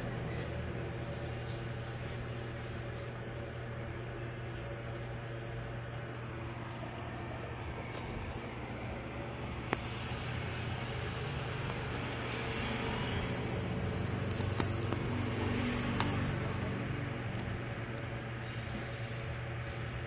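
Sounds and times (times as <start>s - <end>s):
low hum and rumble: 0.0s - 20.0s.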